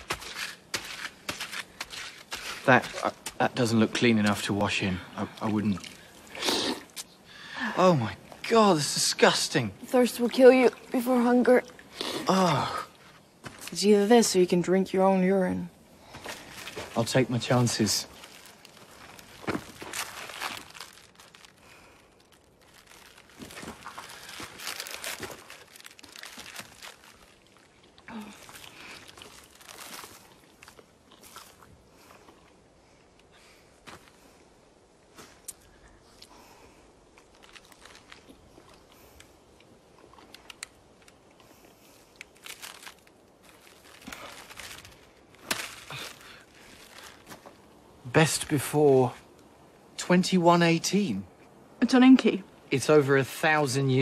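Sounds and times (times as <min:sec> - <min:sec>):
rustling and crunching on gravel: 0:00.0 - 0:07.0, 0:08.0 - 0:14.6, 0:16.0 - 0:34.4, 0:35.0 - 0:48.7
plastic snack wrapper crinkling: 0:16.3 - 0:31.6, 0:37.2 - 0:39.3, 0:42.1 - 0:47.6.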